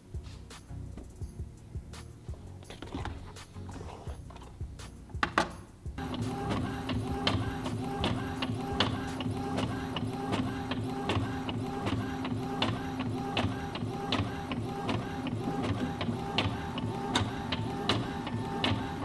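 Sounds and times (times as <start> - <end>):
printer clicks: 5.2 - 19.0
printer carriage motor whine: 6.0 - 19.0.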